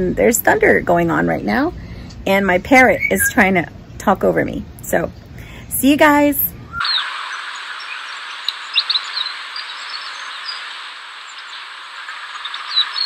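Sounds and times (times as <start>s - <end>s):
bird chirps: 2.4s - 3.5s, 6.7s - 13.0s
steady high hiss: 4.3s - 13.0s.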